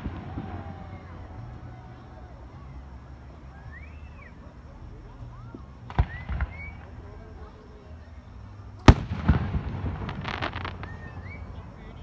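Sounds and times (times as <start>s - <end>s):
firework bangs: 0.0s - 1.6s, 5.4s - 7.2s, 8.8s - 12.0s
small firework pops: 0.0s - 1.6s, 5.4s - 7.1s, 8.8s - 11.5s.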